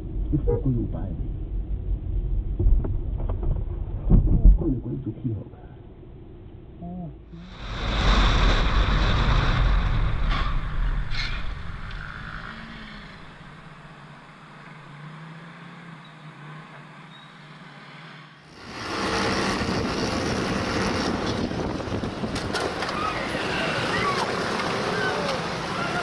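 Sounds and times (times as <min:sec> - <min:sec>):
wind and road noise: 0:00.0 - 0:26.0
motorcycle engine: 0:11.1 - 0:26.0.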